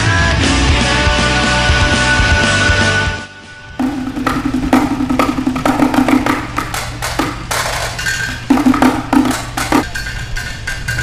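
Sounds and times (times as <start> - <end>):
sticks hitting barrels and drums: 3.8 - 11.0.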